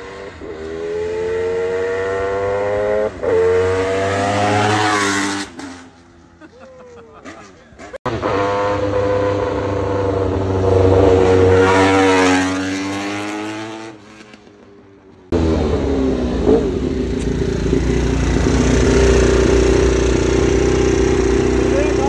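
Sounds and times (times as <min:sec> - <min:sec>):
motorcycle passing by: 0:00.0 - 0:06.1, 0:07.2 - 0:14.4, 0:15.4 - 0:22.0
motorcycle engine idling: 0:16.7 - 0:22.0.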